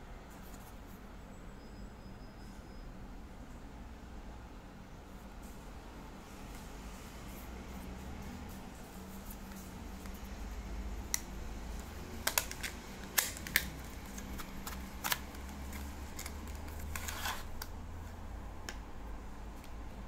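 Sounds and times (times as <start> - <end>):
low steady hum: 0.0 - 20.0
clicks and taps of plastic packaging: 11.1 - 17.0.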